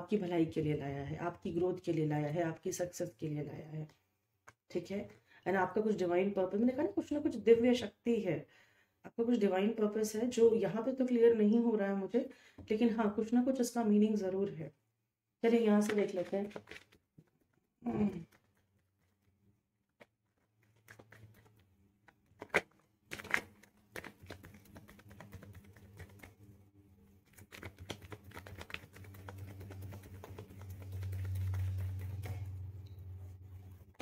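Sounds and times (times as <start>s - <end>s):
cards being shuffled: 15.8s - 17.4s, 19.9s - 26.4s, 27.2s - 32.7s
low hum: 29.1s - 34.0s.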